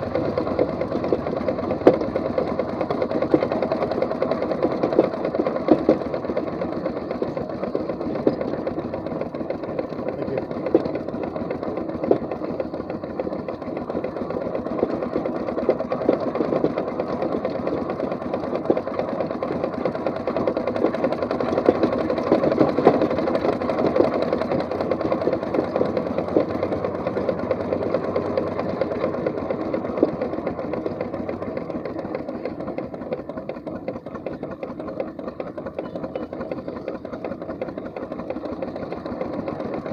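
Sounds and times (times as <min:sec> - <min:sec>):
steam engine mechanical clatter: 0:00.0 - 0:39.9.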